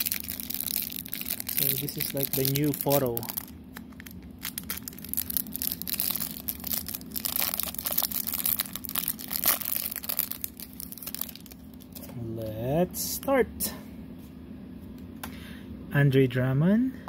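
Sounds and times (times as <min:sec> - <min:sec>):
plastic wrapper crinkling and tearing: 0:00.0 - 0:12.0.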